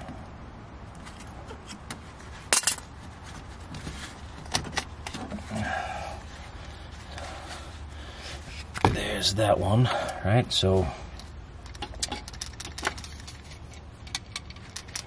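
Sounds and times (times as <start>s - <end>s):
handling rustle: 1.0s - 5.6s
pliers and hose clamp clicking: 11.6s - 13.4s.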